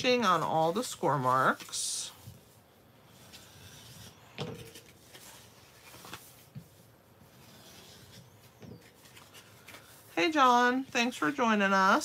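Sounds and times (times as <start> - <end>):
bone folder scraping cardstock: 7.4 - 9.8.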